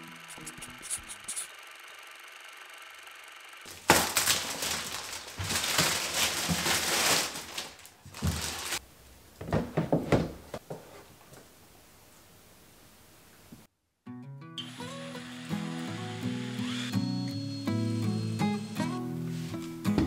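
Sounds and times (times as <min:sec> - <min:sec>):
recycling rustling and crinkling: 0:03.7 - 0:08.8.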